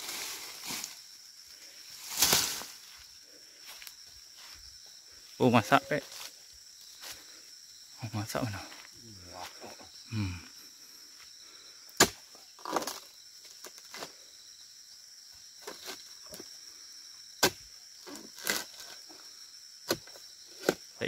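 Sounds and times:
rustling of palm fronds: 0.0 - 4.7
high insect drone: 0.0 - 21.0
chisel chopping palm fronds: 12.0 - 13.0, 17.4 - 19.0, 19.8 - 20.9.

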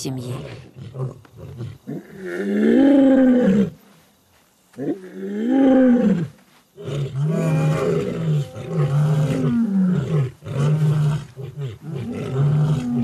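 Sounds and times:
lions roaring: 4.8 - 13.0.

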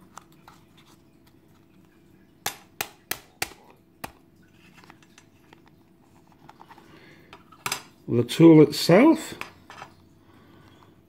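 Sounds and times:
faint handling sounds: 0.0 - 2.3, 3.7 - 8.1, 9.2 - 11.0.

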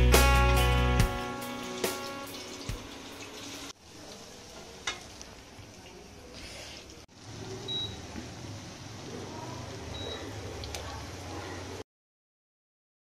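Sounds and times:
guitar music: 0.0 - 3.0
fritters sizzling in hot oil: 0.4 - 11.8.

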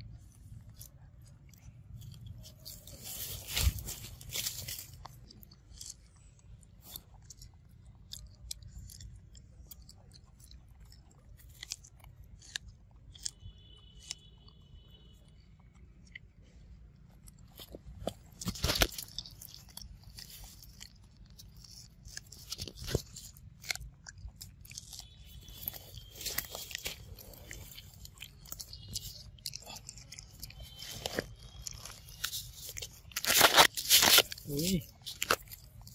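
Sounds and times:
monkey chewing corn cob: 0.0 - 35.9.

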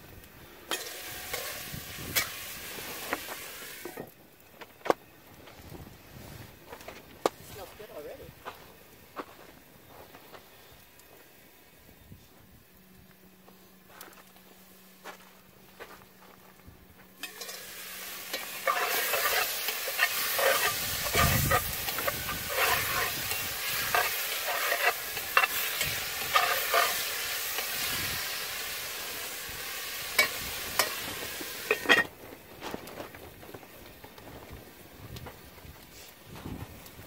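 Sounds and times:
food sizzling in hot oil: 0.7 - 4.0, 17.2 - 32.0
metal spatula scraping: 17.2 - 28.0.

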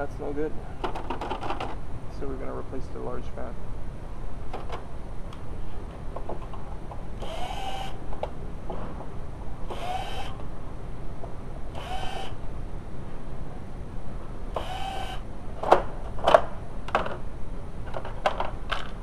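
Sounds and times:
electric screwdriver whining: 7.2 - 8.0, 9.7 - 10.4, 11.8 - 12.4, 14.6 - 15.2.

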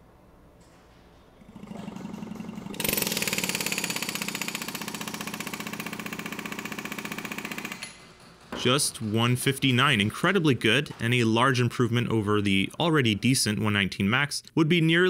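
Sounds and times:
pneumatic air hammer blows: 1.5 - 8.2.

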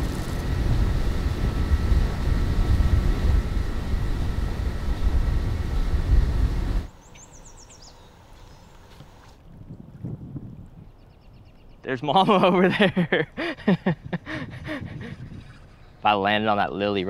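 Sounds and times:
vehicle running low rumble: 0.0 - 7.7.

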